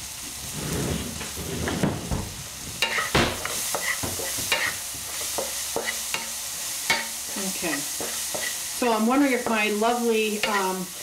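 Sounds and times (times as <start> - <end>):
food sizzling in a wok: 0.0 - 0.6, 2.3 - 11.0
wooden spatula scraping a pan: 0.4 - 2.1, 2.8 - 6.3, 6.9 - 9.7.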